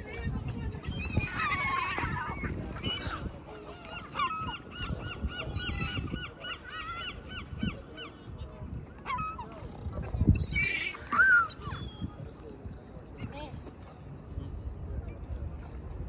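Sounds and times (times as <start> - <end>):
gulls calling: 0.8 - 12.2.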